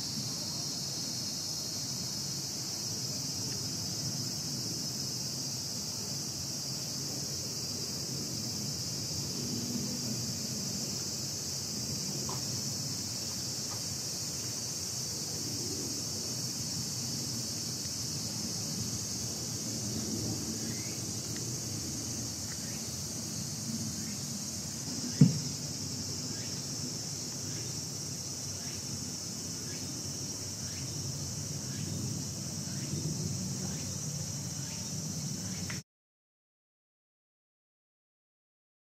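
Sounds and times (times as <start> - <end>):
insect chorus drone: 0.0 - 35.8
loud thump: 25.2 - 25.6.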